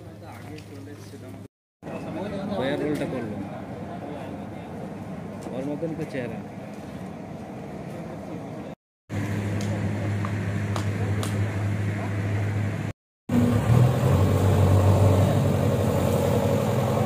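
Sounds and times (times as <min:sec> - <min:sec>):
diesel engine running: 0:06.4 - 0:17.0.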